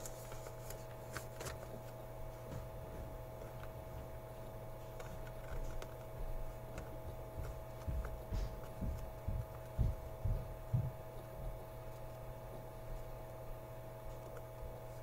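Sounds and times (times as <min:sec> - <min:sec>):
low electrical hum: 0:00.0 - 0:15.0
soft low thumps and knocks: 0:06.9 - 0:11.6.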